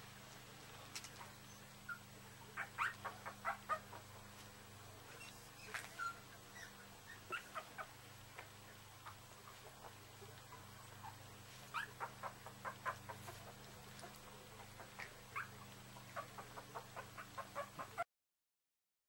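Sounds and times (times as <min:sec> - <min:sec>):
low steady hum: 0:00.0 - 0:18.0
puppy squeaking and whimpering: 0:01.2 - 0:04.0, 0:05.1 - 0:07.9, 0:10.5 - 0:14.2, 0:14.8 - 0:15.6, 0:16.2 - 0:18.0
dog licking: 0:13.1 - 0:15.1.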